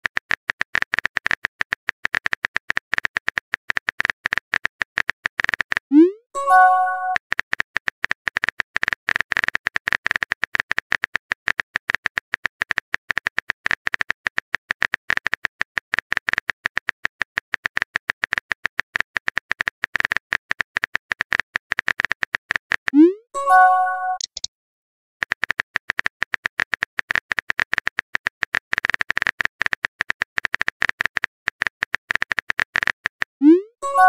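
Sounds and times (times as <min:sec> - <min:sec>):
keyboard typing clicks: 0:03.7 - 0:07.2, 0:22.8 - 0:24.5.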